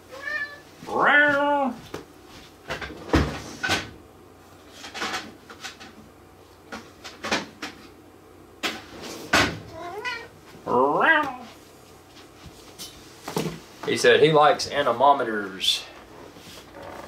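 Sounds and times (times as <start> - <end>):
cat meowing: 0.1 - 1.8, 9.7 - 11.6.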